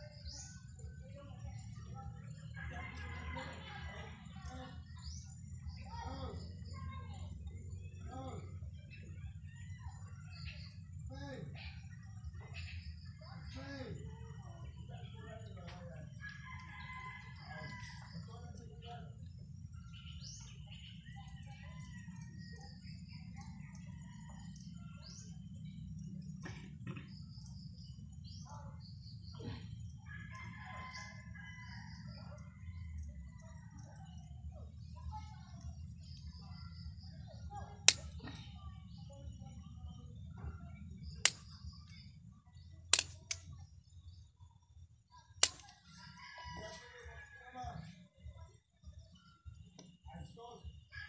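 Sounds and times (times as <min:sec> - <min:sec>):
birds chirping: 0:00.0 - 0:51.0
scissors snipping: 0:42.9 - 0:43.4, 0:45.4 - 0:45.8.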